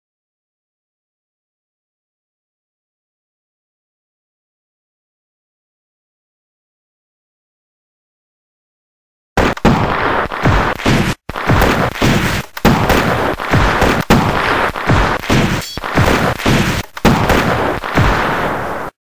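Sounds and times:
rapid loud gunshots: 0:09.4 - 0:19.0.

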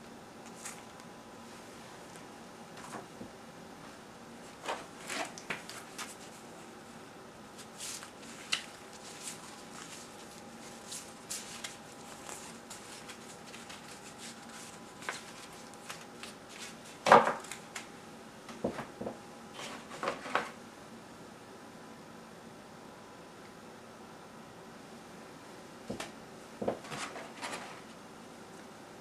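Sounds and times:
paper and cardboard rustling: 0:04.5 - 0:06.5, 0:07.6 - 0:17.9, 0:19.6 - 0:20.6, 0:26.7 - 0:27.9.

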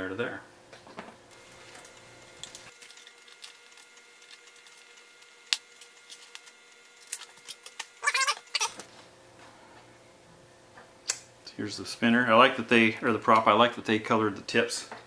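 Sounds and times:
squeaky crackly scrape: 0:07.3 - 0:08.8.

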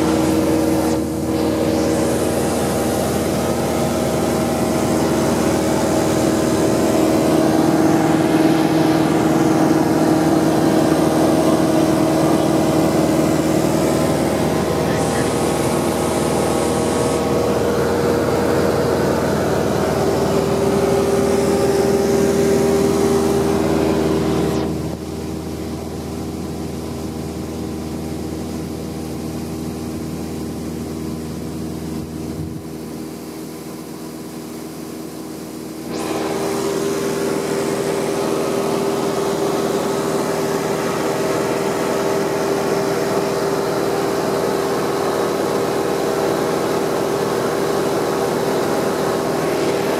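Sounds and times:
light aircraft engine droning: 0:00.0 - 0:28.0.

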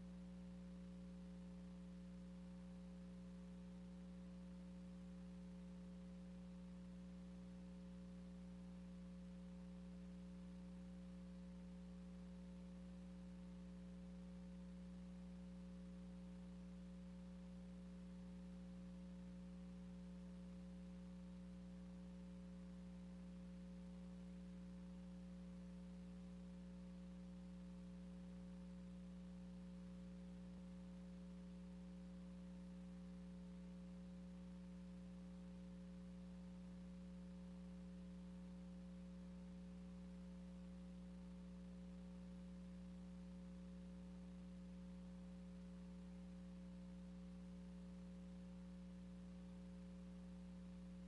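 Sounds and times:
faint electrical hum: 0:00.0 - 0:51.0.

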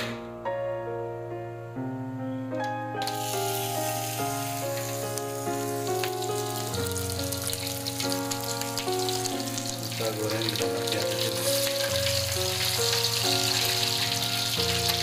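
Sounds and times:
background music: 0:00.0 - 0:15.0
fish sizzling in hot oil: 0:03.0 - 0:15.0.

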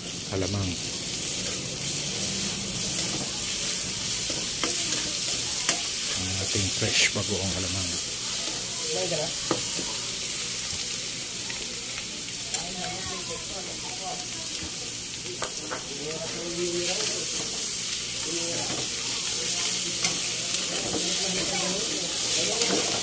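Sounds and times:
food sizzling in a hot pan: 0:00.0 - 0:23.0
metal spatula stirring: 0:01.1 - 0:07.1, 0:20.0 - 0:23.0.

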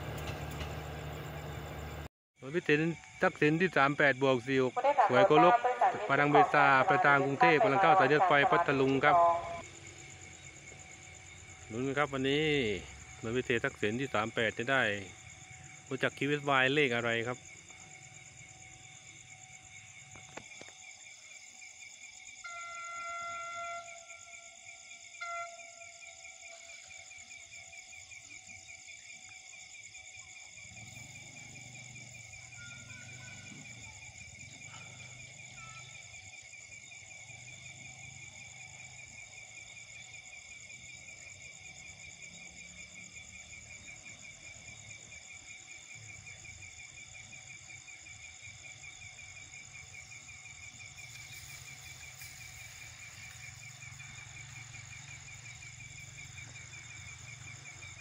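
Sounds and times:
faint low engine rumble: 0:00.0 - 0:02.1
night insects trilling: 0:00.0 - 0:58.0.

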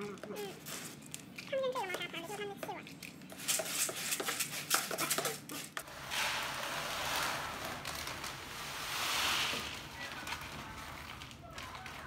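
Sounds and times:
scoop scraping cat litter: 0:03.3 - 0:12.0
litter pellets pouring into tray: 0:05.9 - 0:12.0.

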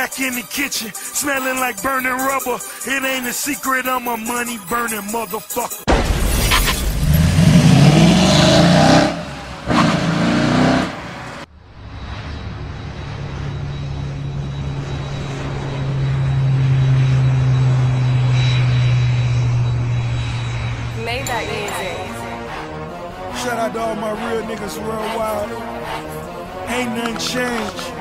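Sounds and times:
vehicle engine droning: 0:06.8 - 0:28.0.

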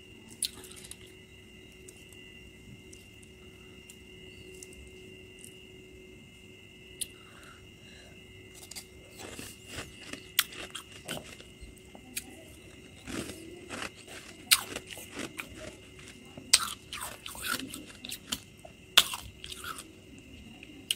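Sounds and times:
chewing crunchy frost: 0:00.3 - 0:01.2, 0:08.5 - 0:20.9.

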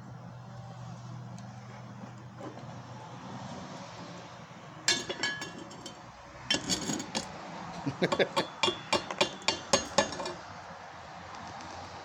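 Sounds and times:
hammer striking metal: 0:08.2 - 0:10.4.

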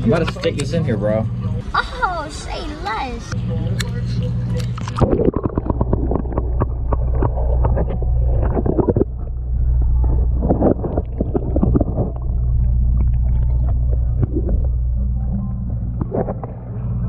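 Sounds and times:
low machinery hum underwater: 0:00.0 - 0:17.0
water bubbling: 0:04.6 - 0:17.0.

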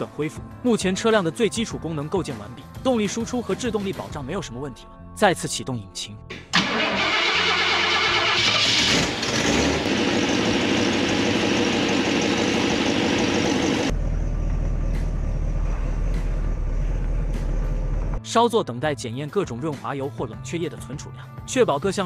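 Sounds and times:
car engine starting and running: 0:06.3 - 0:18.2.

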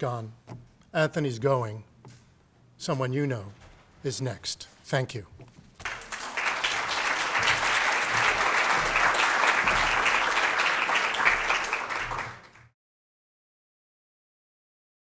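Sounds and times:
audience applauding: 0:05.8 - 0:12.7.

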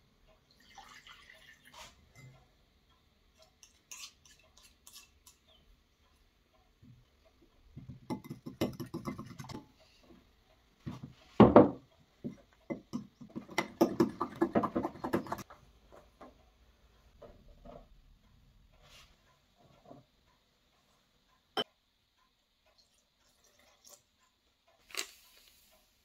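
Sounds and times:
utensil scraping glass bowl: 0:03.6 - 0:05.6.

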